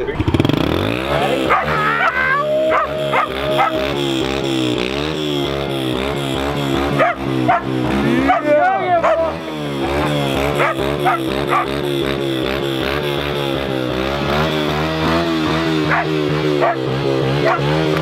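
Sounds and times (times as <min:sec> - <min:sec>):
wavering pitched drone: 0:01.1 - 0:17.8
dog barking excitedly: 0:01.4 - 0:03.8, 0:07.0 - 0:09.4, 0:10.6 - 0:11.8, 0:15.9 - 0:16.8, 0:17.4 - 0:17.8.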